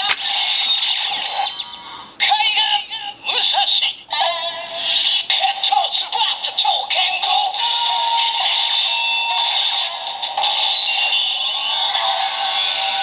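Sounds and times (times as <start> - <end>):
sharp click: 0.0 - 0.4.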